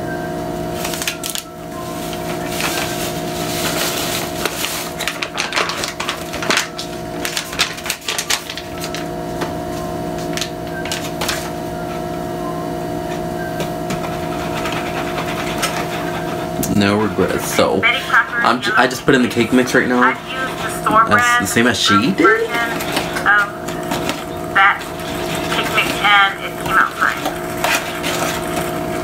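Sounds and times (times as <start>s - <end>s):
steady background hum: 0.0s - 29.0s
bag rustling and crinkling: 0.8s - 9.1s, 22.3s - 29.0s.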